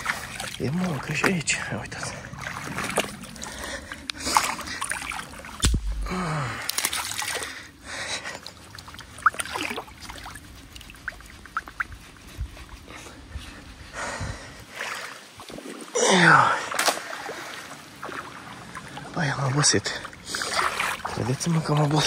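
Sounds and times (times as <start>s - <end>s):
water splashing and trickling: 0.0s - 22.0s
person grunting: 5.9s - 6.7s, 15.9s - 16.7s.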